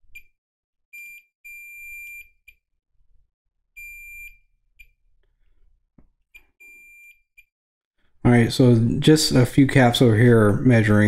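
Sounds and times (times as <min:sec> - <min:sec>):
multimeter beeping: 0:00.1 - 0:00.3, 0:01.0 - 0:02.6, 0:03.8 - 0:05.0, 0:06.4 - 0:07.5.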